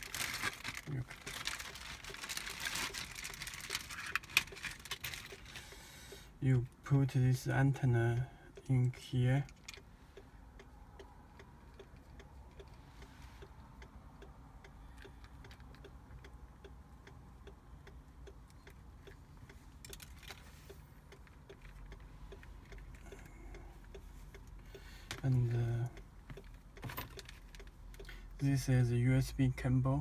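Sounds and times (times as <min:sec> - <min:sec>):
faint steady ticking: 0:00.0 - 0:30.0
low car cabin hum: 0:00.0 - 0:30.0.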